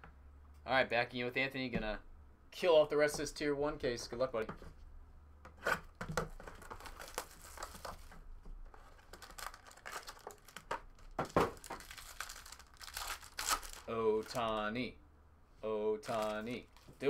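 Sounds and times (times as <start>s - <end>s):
packaging crinkling and tearing: 6.4s - 8.1s, 8.8s - 14.6s, 16.0s - 16.9s.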